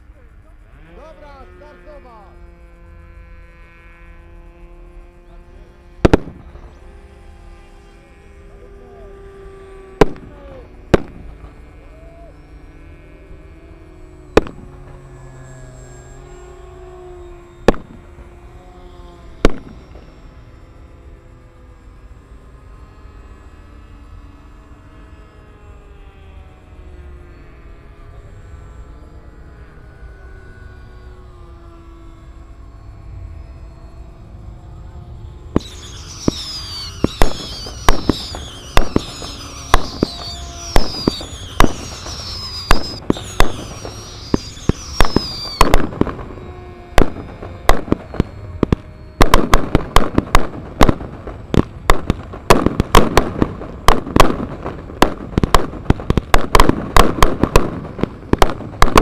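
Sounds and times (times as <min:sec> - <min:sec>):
model aircraft engines droning: 0:00.0 - 0:59.0
pyrotechnic bangs: 0:06.0 - 0:06.9, 0:09.9 - 0:11.7, 0:14.2 - 0:16.2, 0:17.6 - 0:18.3, 0:19.4 - 0:20.2, 0:35.5 - 0:59.0
high falling whistles: 0:11.3 - 0:24.5, 0:29.8 - 0:51.5.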